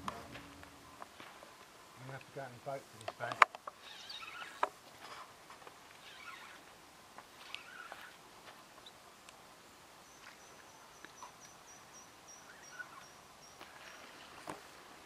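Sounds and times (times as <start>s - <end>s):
faint high pulsing chirping: 3.8s - 4.6s, 6.0s - 6.6s, 10.0s - 14.2s
soft chirps and clicks: 10.1s - 14.1s.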